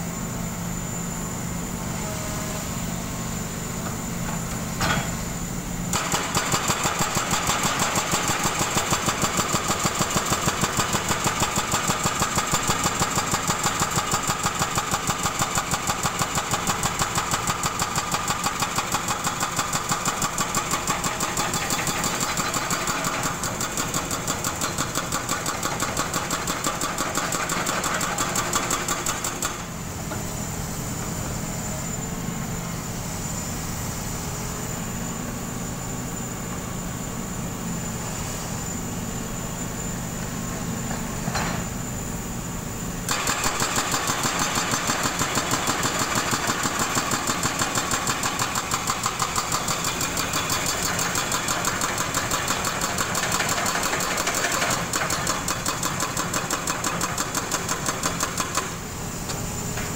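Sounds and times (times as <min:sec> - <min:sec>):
hydraulic breaker hammering concrete: 0:05.9 - 0:29.8, 0:43.0 - 0:59.9.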